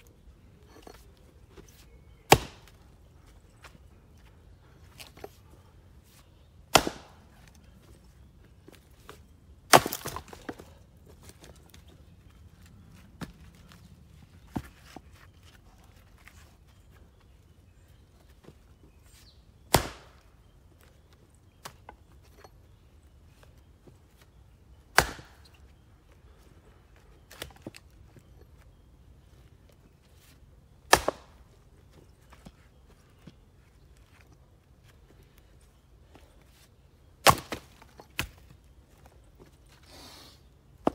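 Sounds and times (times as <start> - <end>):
axe chopping wood: 2.3 - 2.8, 6.7 - 7.6, 9.7 - 10.6, 19.7 - 20.3, 24.9 - 25.4, 30.9 - 31.5, 37.2 - 38.5.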